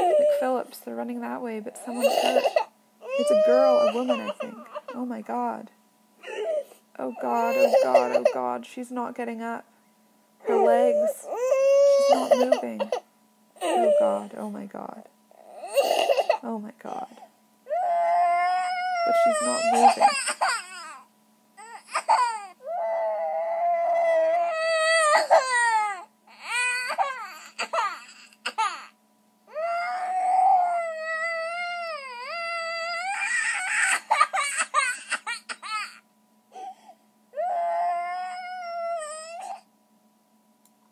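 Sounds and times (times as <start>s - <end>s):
baby crying: 0.0s - 0.4s, 1.9s - 5.0s, 6.2s - 8.4s, 10.4s - 13.0s, 13.6s - 14.3s, 15.4s - 16.4s, 17.7s - 36.0s, 37.4s - 39.6s.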